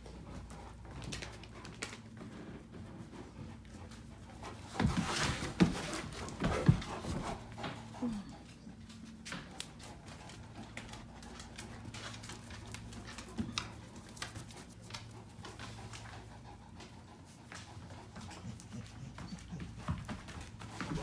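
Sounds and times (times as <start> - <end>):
faint low hum: 0.0 - 21.0
dog claws tapping on floor: 8.9 - 16.1.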